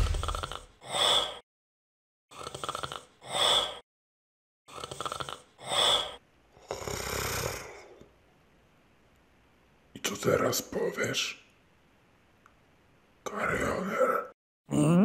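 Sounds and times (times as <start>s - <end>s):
gasping breaths: 0.1s - 1.4s.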